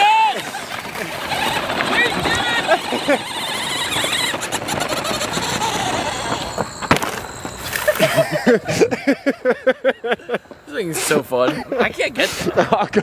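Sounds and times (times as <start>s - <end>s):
tyres on gravel: 0.0s - 13.0s
voices: 0.0s - 13.0s
electric motor whining: 0.6s - 7.9s.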